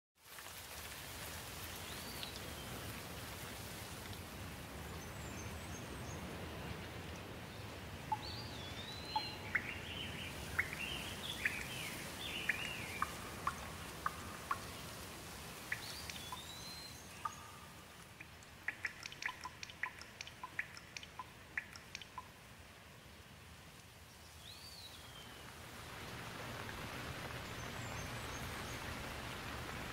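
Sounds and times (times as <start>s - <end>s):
steady rain falling: 0.2s - 29.9s
raindrops tapping: 8.1s - 9.9s, 10.5s - 22.4s
birds chirping: 8.1s - 22.3s.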